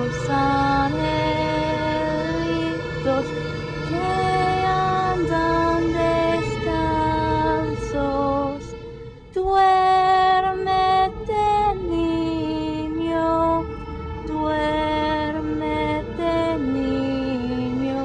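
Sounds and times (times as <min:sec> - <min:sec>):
slow lullaby-like melody: 0:00.0 - 0:18.0.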